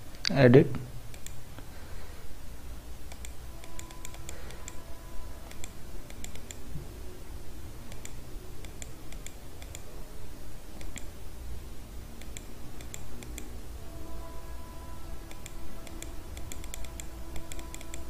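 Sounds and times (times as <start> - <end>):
low steady hum: 0.0 - 18.0
computer keys and mouse clicking: 1.1 - 1.6, 3.0 - 4.8, 5.4 - 6.7, 7.9 - 9.9, 10.7 - 11.2, 12.2 - 13.6, 15.3 - 18.0.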